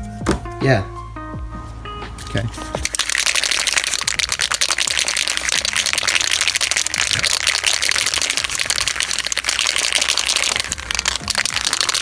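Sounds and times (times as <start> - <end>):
spray cans rattling when shaken: 2.7 - 12.0.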